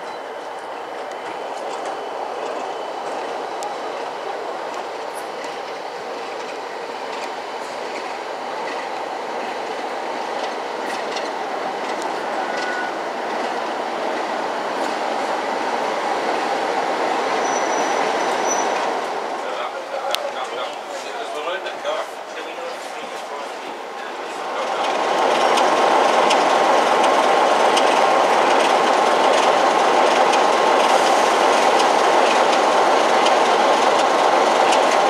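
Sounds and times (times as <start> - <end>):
passing diesel locomotive: 0.0 - 35.0
train wheel clatter and rumble: 0.0 - 35.0
faint high squeal: 12.3 - 13.0, 17.4 - 18.8.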